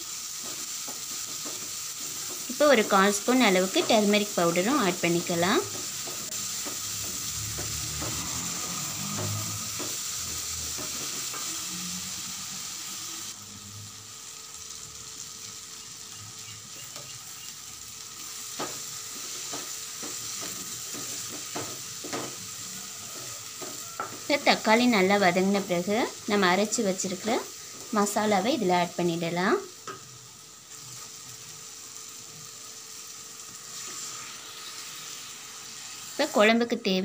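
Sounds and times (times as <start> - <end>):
onions sizzling in oil: 0.0 - 37.0
spatula scraping pan: 5.7 - 11.9.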